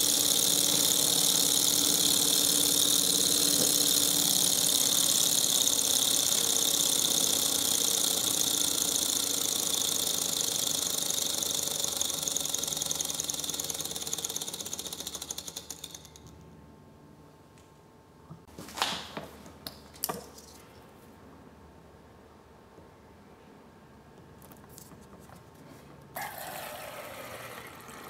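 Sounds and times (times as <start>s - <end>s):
small engine rapid clatter: 0.0s - 16.3s.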